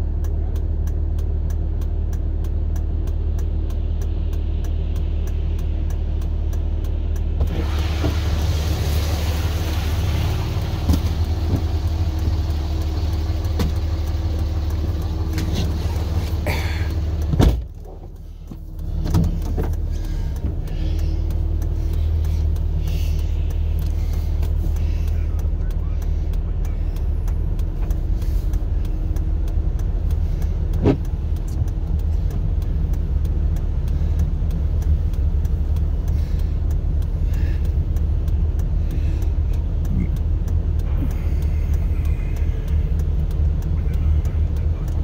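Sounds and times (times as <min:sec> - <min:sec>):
vehicle engine idling: 0:00.0 - 0:45.0.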